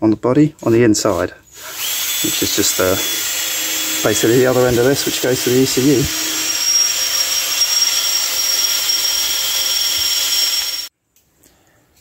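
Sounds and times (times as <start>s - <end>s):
electric motor whirring hiss: 1.6s - 10.9s.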